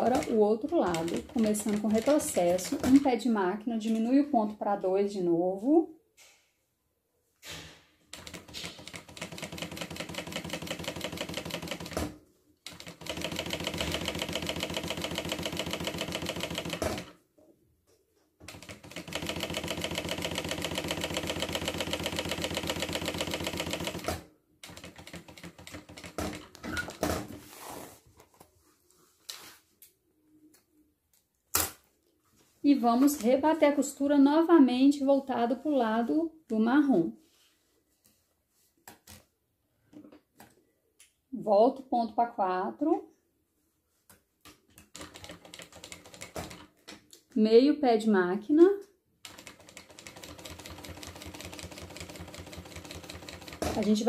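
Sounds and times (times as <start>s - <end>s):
sewing machine stitching: 0.0s - 3.1s, 8.1s - 12.1s, 12.7s - 17.2s, 18.4s - 27.1s, 49.2s - 54.0s.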